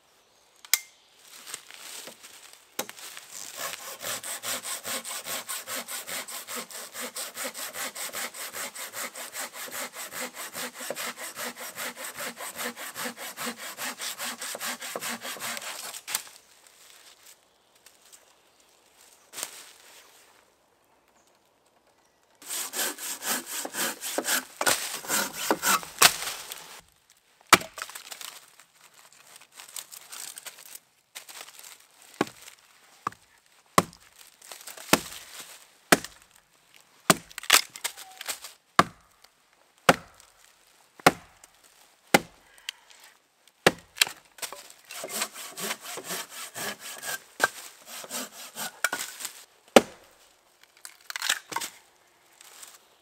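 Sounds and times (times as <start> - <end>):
dry wood snapping and splintering: 27.5 - 28.5, 37.1 - 39.0, 50.6 - 51.8.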